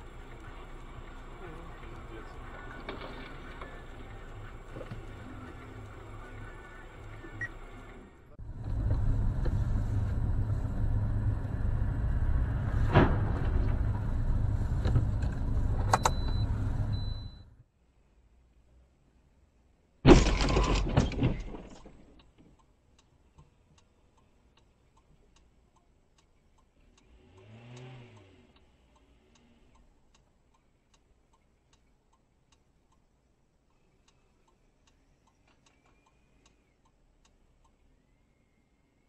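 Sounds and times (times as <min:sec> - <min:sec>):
faint steady ticking: 0:00.0 - 0:07.8, 0:22.0 - 0:39.0
rising and falling hum: 0:03.4 - 0:17.2
car crash impact: 0:12.7 - 0:14.1, 0:20.0 - 0:22.1.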